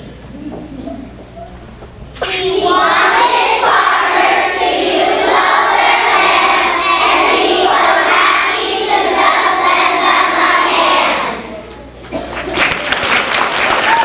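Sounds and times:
children singing in unison: 2.2s - 11.6s.

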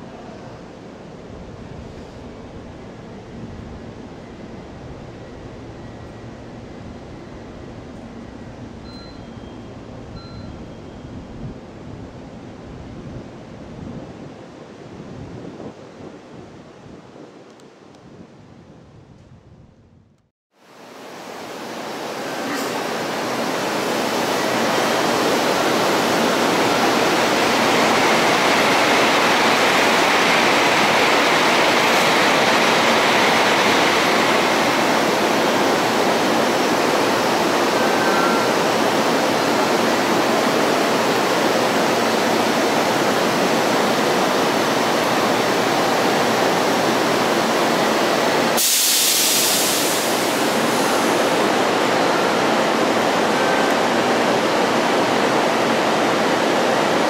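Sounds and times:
trains rushing at a platform: 0.0s - 19.3s, 20.6s - 57.0s
short high hiss: 48.6s - 51.2s.

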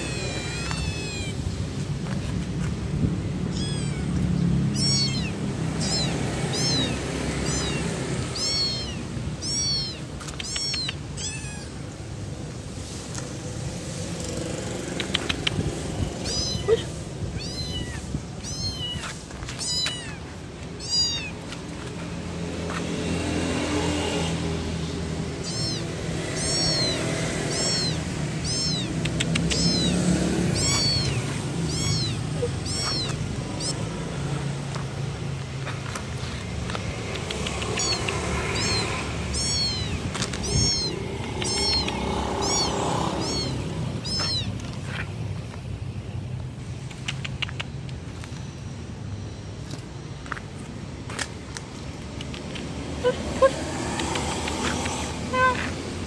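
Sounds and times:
kitten meowing: 0.0s - 1.6s, 3.4s - 12.0s, 15.0s - 21.7s, 25.3s - 34.4s, 37.2s - 45.0s, 53.0s - 55.8s.

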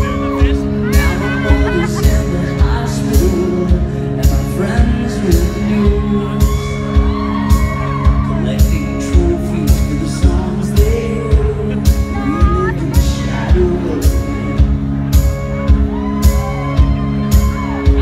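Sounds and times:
person singing: 0.0s - 14.8s
live band playing loudly: 0.0s - 18.0s
steady kick-drum beat: 0.0s - 18.0s.

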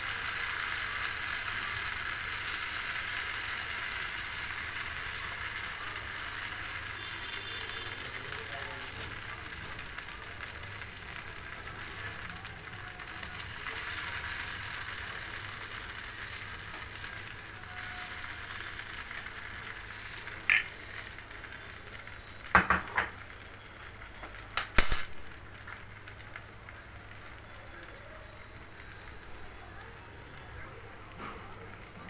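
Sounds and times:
batter sizzling in oil: 0.0s - 32.0s
metal spoon clinking on pan: 20.5s - 20.7s, 24.7s - 25.3s.

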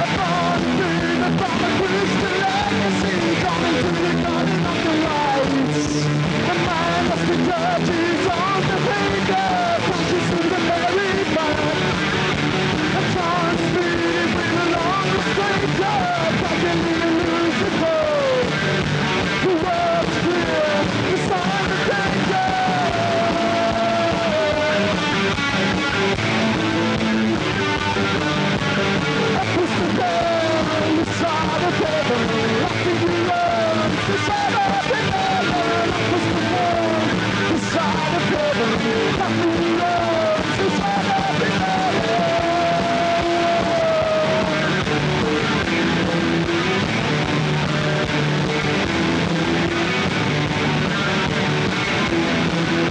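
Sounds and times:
live rock band playing: 0.0s - 52.9s.

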